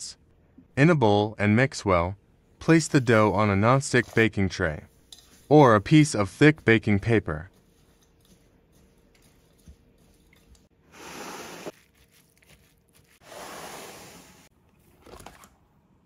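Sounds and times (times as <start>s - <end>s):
spoon scraping wet dough: 6.4s - 10.6s.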